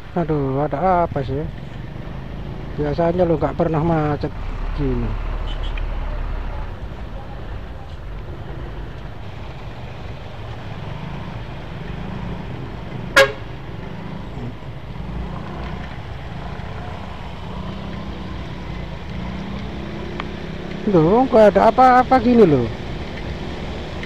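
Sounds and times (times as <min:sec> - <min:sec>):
rain and wet tyres hiss: 0:00.3 - 0:24.0
short horn toot: 0:13.1 - 0:13.4.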